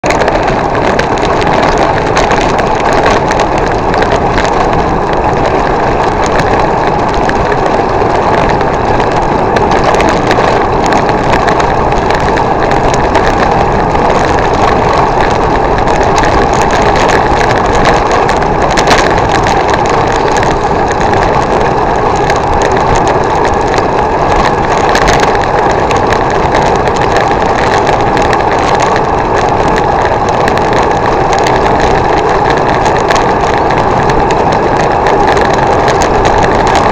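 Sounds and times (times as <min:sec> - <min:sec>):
road noise: 0:00.0 - 0:36.9.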